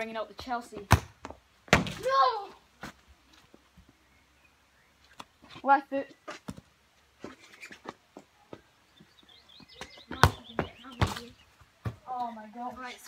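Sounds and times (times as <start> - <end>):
loud football kick thumps: 1.7 - 2.1.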